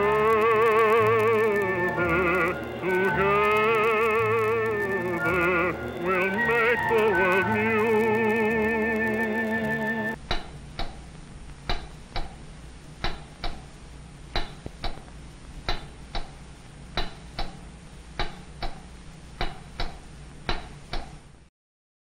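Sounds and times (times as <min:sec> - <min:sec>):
sharp ticks: 0:00.0 - 0:11.0, 0:14.4 - 0:15.1, 0:15.7 - 0:16.4, 0:17.0 - 0:17.6, 0:18.2 - 0:21.2
low steady hum and hiss: 0:00.0 - 0:21.5.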